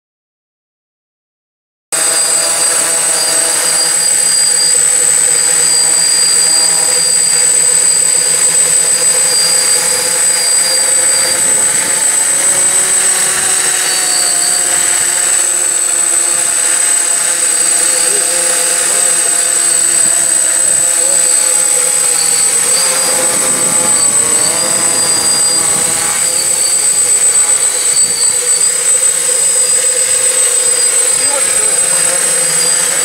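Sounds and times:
drone motors buzzing: 2.0 - 33.0
high propeller whine: 2.0 - 33.0.

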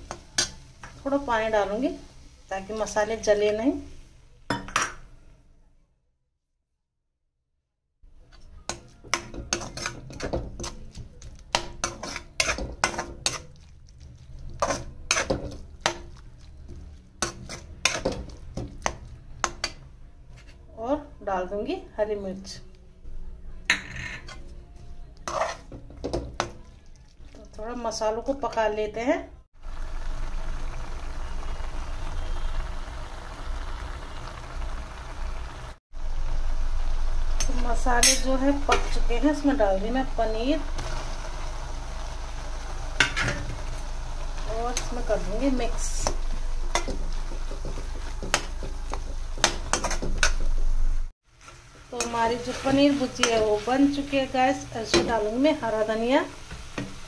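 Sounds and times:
metal spatula scraping a pan: 8.2 - 20.7, 25.2 - 26.6, 37.4 - 39.2, 43.0 - 50.7, 51.4 - 55.3
sauce bubbling in a pan: 29.6 - 37.4.

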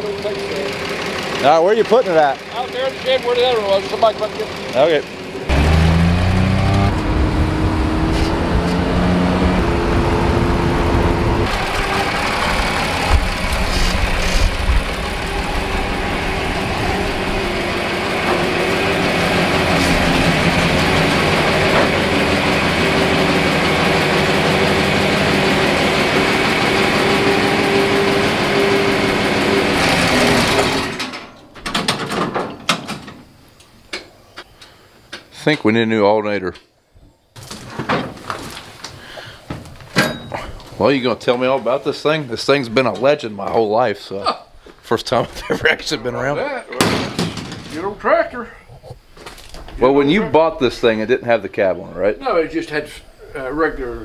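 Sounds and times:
tractor diesel engine running: 0.0 - 31.4.

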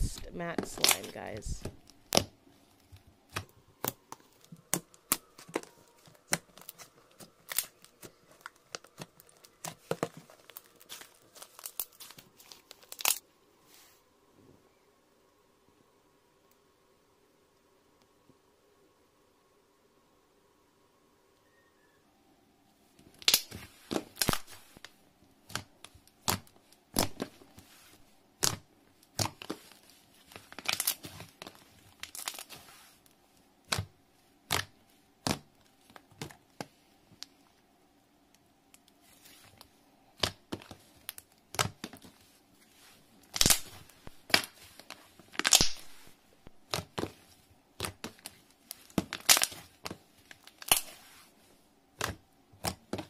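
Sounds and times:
slime crackling and popping: 0.6 - 13.2, 23.0 - 27.4, 28.4 - 32.7, 33.6 - 36.8, 38.7 - 42.1, 43.2 - 47.2, 47.8 - 51.1.

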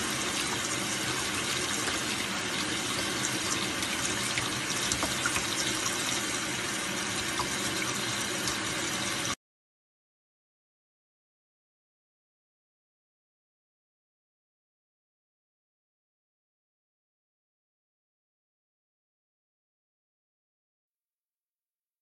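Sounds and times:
tap water running and splashing: 0.0 - 9.4.

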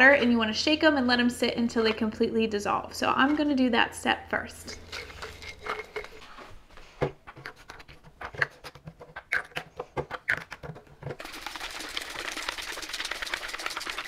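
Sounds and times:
plastic bottles rattling: 4.7 - 14.0.

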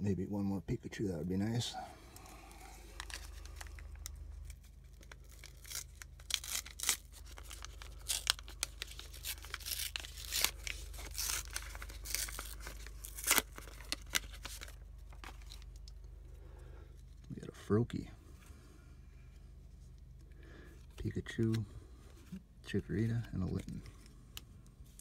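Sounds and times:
plastic wrapper tearing and crinkling: 2.8 - 16.0.

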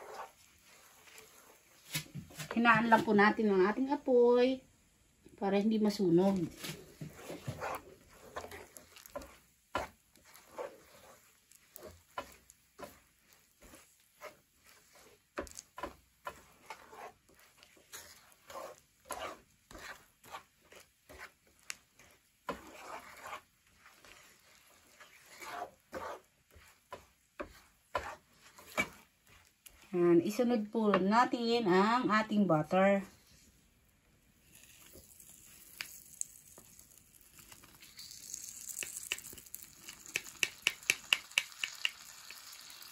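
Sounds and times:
wooden spatula scraping a pan: 0.0 - 4.2, 5.6 - 33.6, 34.4 - 35.7.

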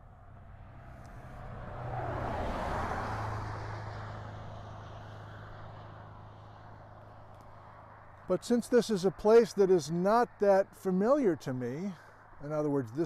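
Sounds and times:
vehicle driving past: 0.0 - 8.2.

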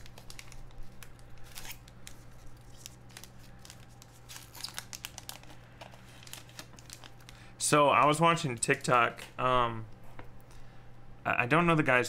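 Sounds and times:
foil wrappers crinkling and tearing: 0.0 - 7.4.

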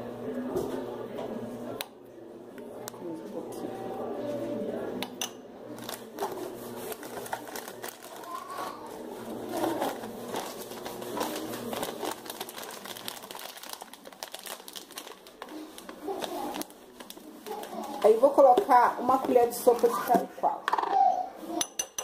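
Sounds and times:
plastic and foil packets crinkling: 5.8 - 20.3.

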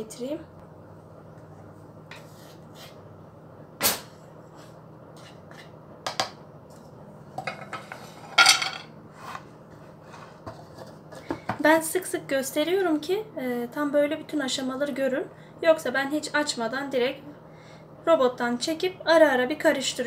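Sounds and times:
utensils clattering in frying pan: 7.4 - 9.0.

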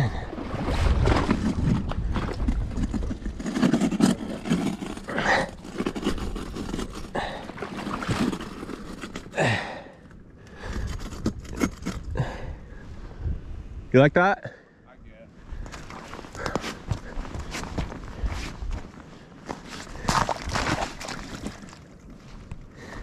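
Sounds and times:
footsteps crunching on gravel and snow: 15.6 - 23.0.

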